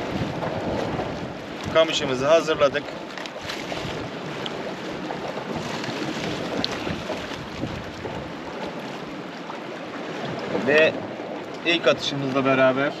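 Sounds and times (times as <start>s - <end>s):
wind on microphone: 0.0s - 9.3s
sea washing against rocks: 0.0s - 13.0s.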